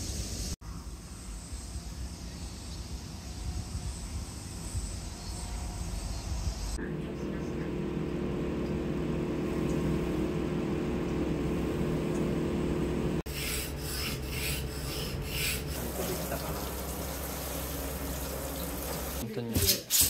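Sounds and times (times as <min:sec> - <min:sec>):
washer-dryer humming: 0:05.2 - 0:20.0
knife on whetstone: 0:13.3 - 0:16.2.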